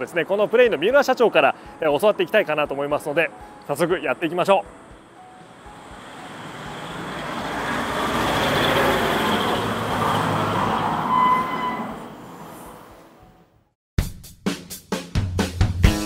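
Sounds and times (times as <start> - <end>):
vehicle passing by rumbling: 5.5 - 11.2
brief high squeal: 11.1 - 12.0.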